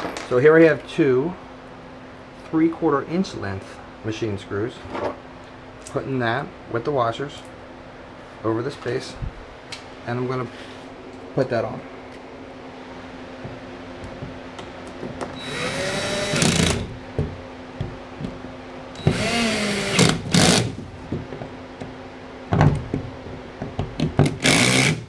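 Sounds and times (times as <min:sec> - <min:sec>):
cordless drill whirring: 0:15.4 - 0:16.9, 0:19.0 - 0:20.8, 0:24.4 - 0:25.0.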